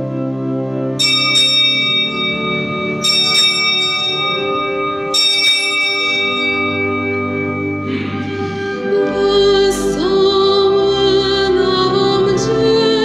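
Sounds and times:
organ chord: 0:00.0 - 0:13.0
small bell ringing: 0:01.0 - 0:07.9.

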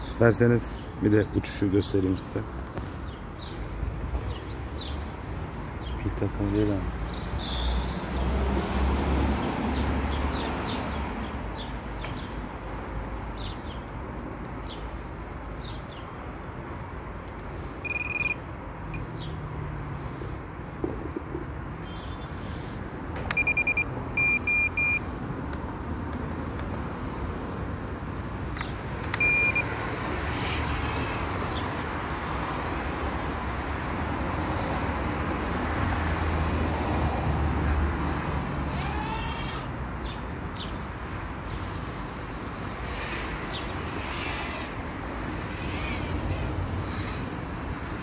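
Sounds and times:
short high-pitched beeps: 0:17.7 - 0:19.0, 0:23.3 - 0:25.0, 0:29.2 - 0:29.7
quadcopter motors whining: 0:29.1 - 0:35.5, 0:38.0 - 0:40.0, 0:41.0 - 0:48.0.

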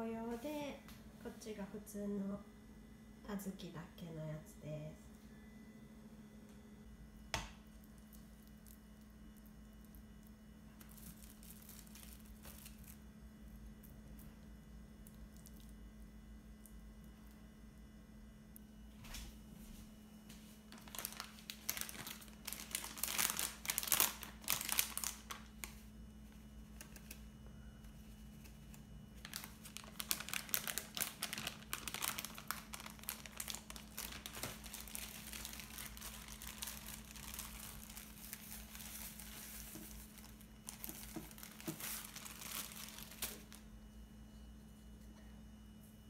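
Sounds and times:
steady low hum: 0:00.0 - 0:46.0
plastic packaging crinkling: 0:07.7 - 0:13.2, 0:20.6 - 0:27.3, 0:28.0 - 0:43.7.

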